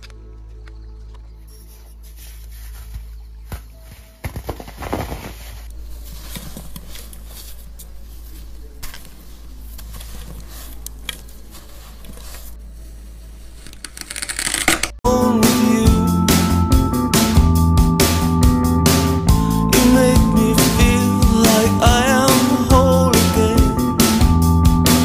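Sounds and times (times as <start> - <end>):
sand crunching and crumbling: 1.7 - 13.6
loud music: 15.0 - 25.0.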